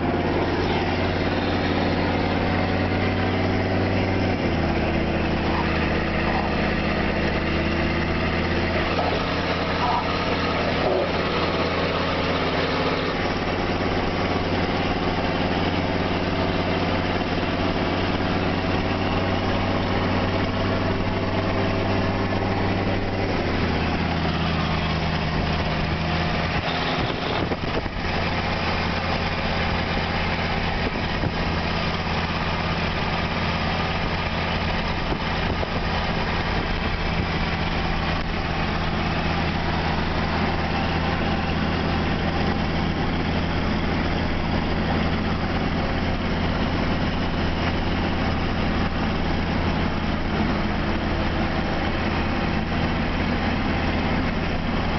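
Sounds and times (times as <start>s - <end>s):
vehicle engine hum: 0.0s - 54.9s
tyre and wind noise: 25.3s - 28.3s.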